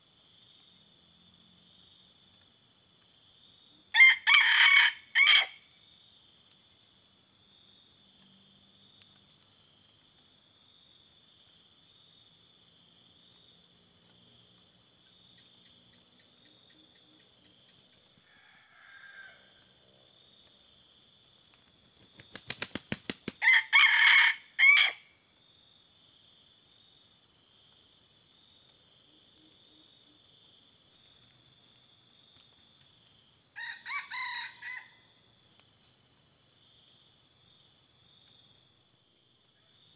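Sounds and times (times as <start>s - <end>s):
rooster crowing: 4.0s - 5.6s, 18.2s - 19.8s, 23.4s - 25.0s, 33.6s - 35.1s
high insect buzz: 21.5s - 23.5s.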